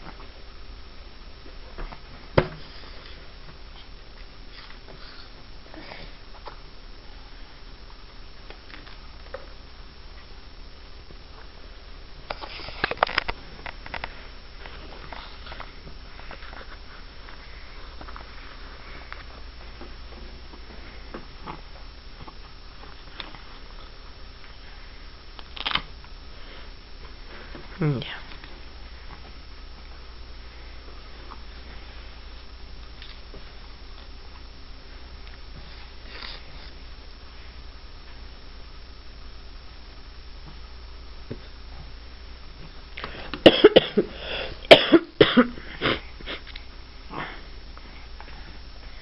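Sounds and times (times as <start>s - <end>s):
low hum: 0.0s - 49.0s
person coughing: 43.4s - 46.4s.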